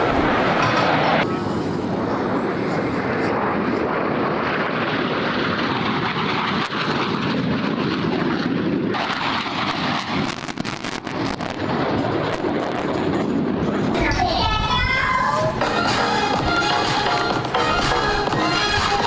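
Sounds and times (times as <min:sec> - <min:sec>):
fighter jet flying past: 0:00.0 - 0:19.0
sharp crackles: 0:09.0 - 0:13.1.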